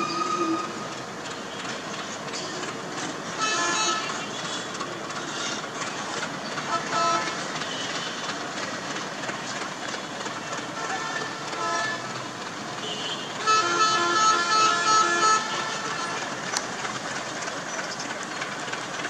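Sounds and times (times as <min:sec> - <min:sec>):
locomotive horn blasts: 0:00.0 - 0:00.8, 0:03.3 - 0:04.5, 0:06.7 - 0:08.3, 0:10.6 - 0:12.2, 0:12.8 - 0:16.6
locomotive engine running: 0:00.0 - 0:19.0.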